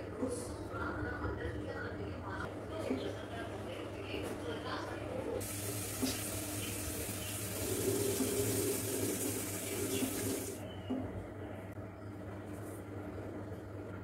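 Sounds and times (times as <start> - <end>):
water running from a tap: 5.4 - 10.6.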